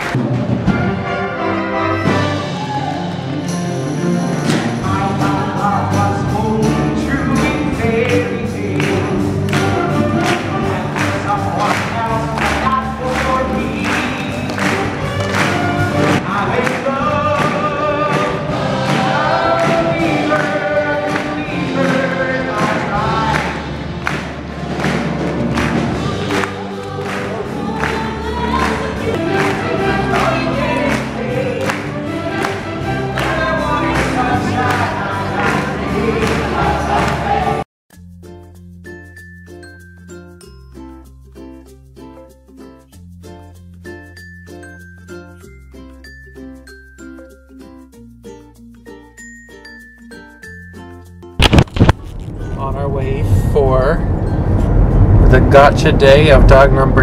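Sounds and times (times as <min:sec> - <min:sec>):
instrumental accompaniment: 0:00.0 - 0:57.0
band with steady beat: 0:04.5 - 0:28.5
cast singing in chorus: 0:16.2 - 0:23.8.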